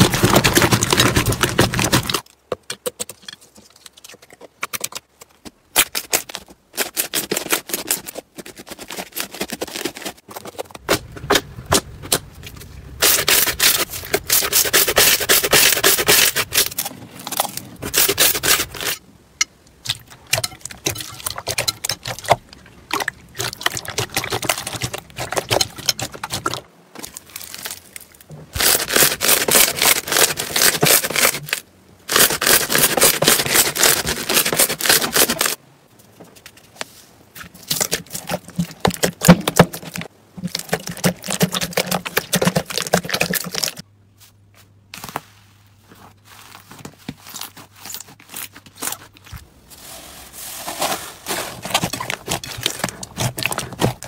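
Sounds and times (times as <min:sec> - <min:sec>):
slime squishing: 0:19.8 - 0:31.5, 0:50.7 - 0:54.0.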